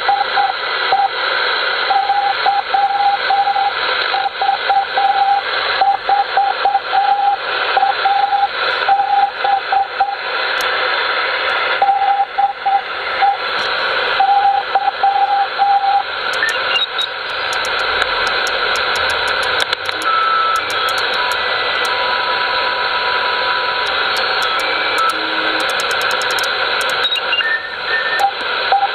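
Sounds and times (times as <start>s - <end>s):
radio receiver hiss: 0.1s - 28.9s
morse code tone: 14.2s - 21.9s, 22.7s - 28.9s
tuning dial clicks: 16.3s - 22.0s, 23.8s - 27.2s.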